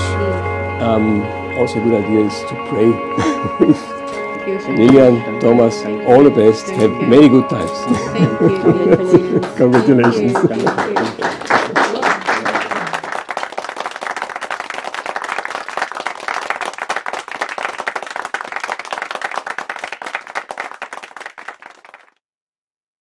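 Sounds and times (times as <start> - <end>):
crowd applauding: 6.1 - 22.2.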